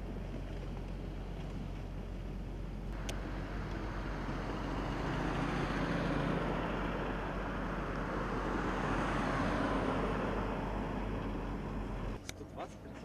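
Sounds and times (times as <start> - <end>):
cars driving past: 2.9 - 12.2.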